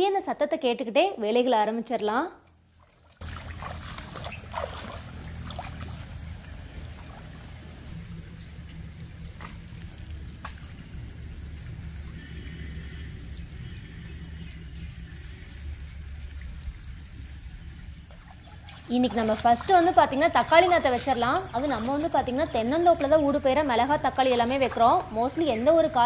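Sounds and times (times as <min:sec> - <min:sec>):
insect chirps: 0:02.3 - 0:26.0
birds calling: 0:02.5 - 0:26.0
water running: 0:03.0 - 0:08.4, 0:18.0 - 0:26.0.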